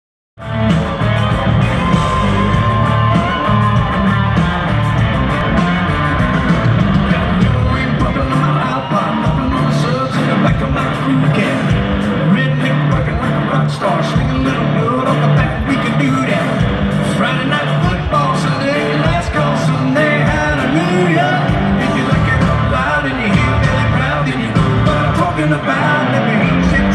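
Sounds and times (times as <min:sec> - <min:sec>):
live country rock band: 0:00.4 - 0:26.9
man singing into a microphone: 0:06.9 - 0:26.9.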